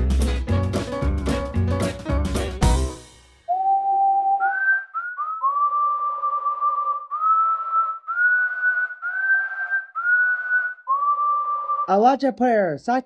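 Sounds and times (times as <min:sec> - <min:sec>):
person whistling a tune: 0:03.5 - 0:12.0.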